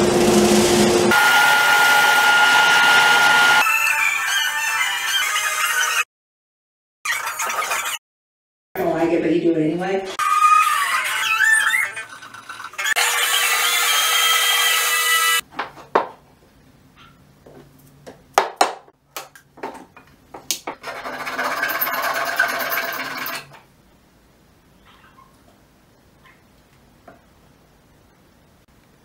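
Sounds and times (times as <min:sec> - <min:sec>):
small power tool whining: 0:01.1 - 0:03.6.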